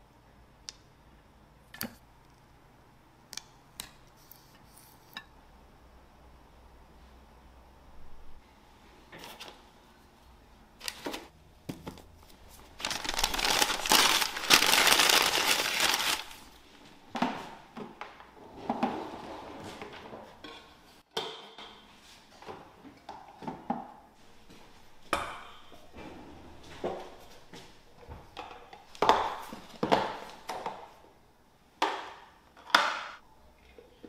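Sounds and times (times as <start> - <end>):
loud crinkling rustle: 12.5 - 16.6.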